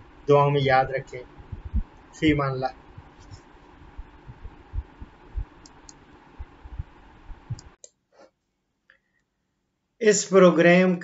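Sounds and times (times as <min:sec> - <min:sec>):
low thumps: 0:01.2 - 0:07.8.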